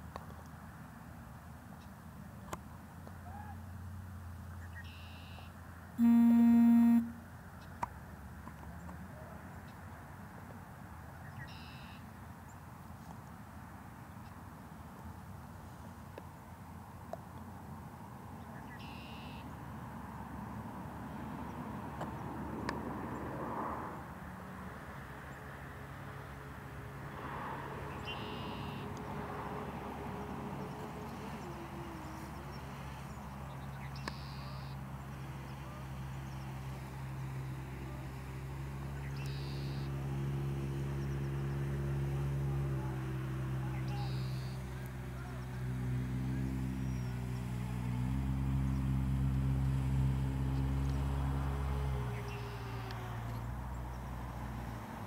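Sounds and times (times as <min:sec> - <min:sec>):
faint low hum: 0:04.9 - 0:07.4
electronic warning tone: 0:06.0 - 0:07.3
bird calling: 0:43.6 - 0:44.6.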